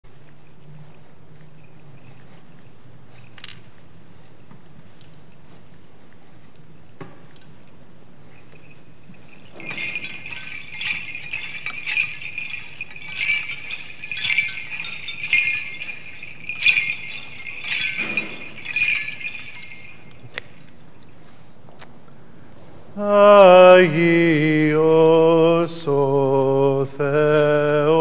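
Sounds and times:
censer bells jingling: 0:08.2 - 0:20.9.

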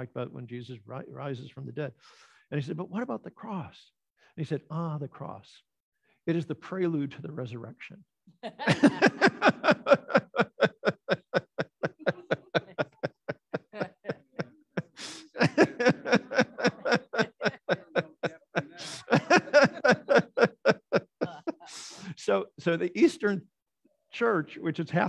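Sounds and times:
group laughing: 0:08.4 - 0:22.4
gasping in-breaths: 0:14.8 - 0:15.4.

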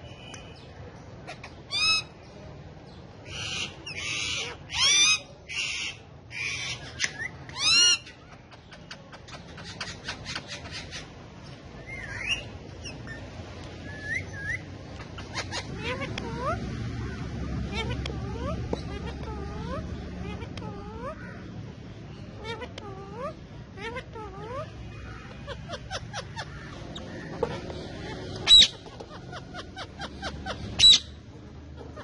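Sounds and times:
parakeets screeching and trilling: 0:00.1 - 0:32.0
soft parakeet chirps: 0:22.1 - 0:31.2.

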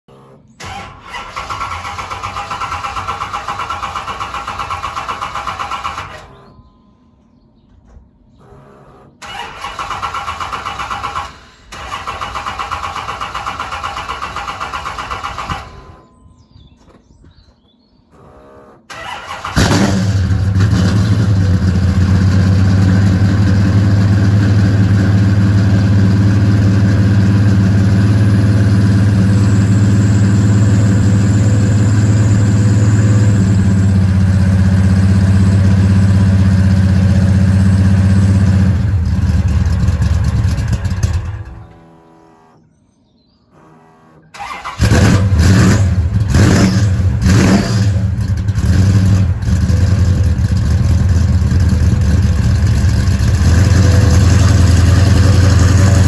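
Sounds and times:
car engine idling: 0:00.0 - 0:06.5, 0:18.2 - 0:42.6, 0:43.6 - 0:56.0
starter motor cranking: 0:08.4 - 0:16.0, 0:18.2 - 0:20.8.

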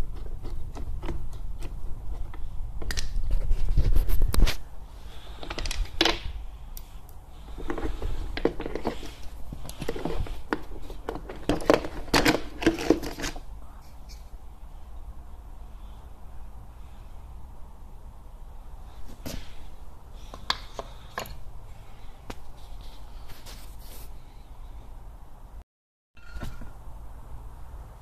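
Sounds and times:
plastic parts clicking and rattling: 0:07.6 - 0:13.5.

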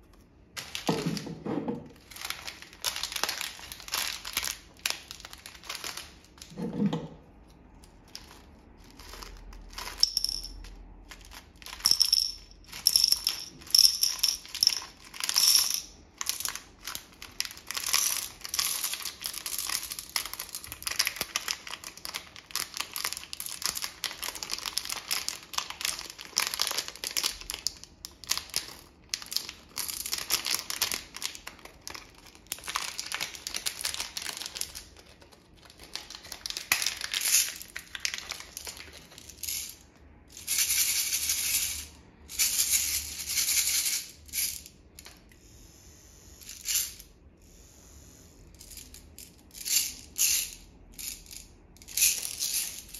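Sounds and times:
plastic bag crinkling: 0:01.9 - 0:06.6, 0:07.7 - 0:10.0, 0:13.2 - 0:39.4.

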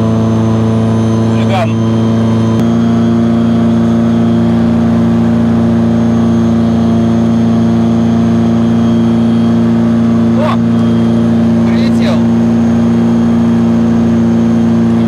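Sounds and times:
small aircraft engine running: 0:00.0 - 0:15.0.

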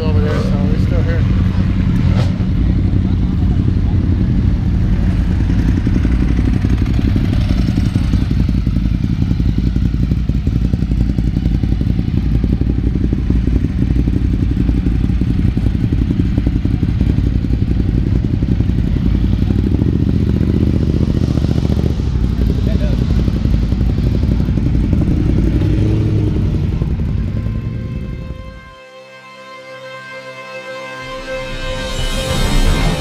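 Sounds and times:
motorcycle engine idling low: 0:02.4 - 0:28.7.

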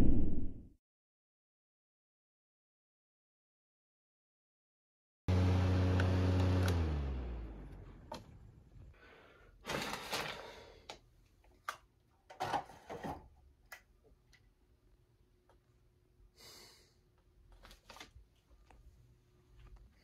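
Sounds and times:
fan motor winding down: 0:05.3 - 0:08.9.

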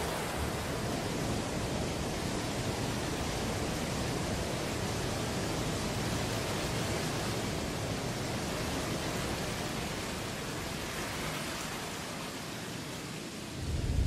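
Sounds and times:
storm soundscape over speakers: 0:13.5 - 0:14.0.

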